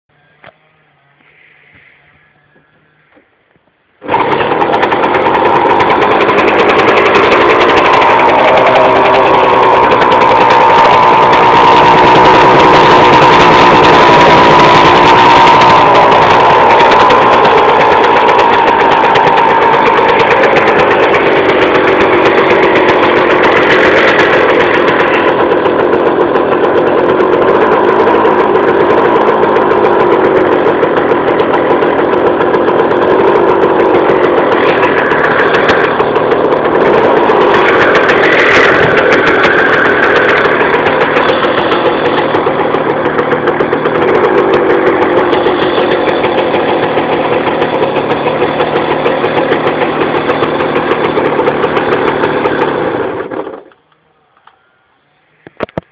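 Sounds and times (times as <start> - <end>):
moped engine idling: 0.1 - 55.9.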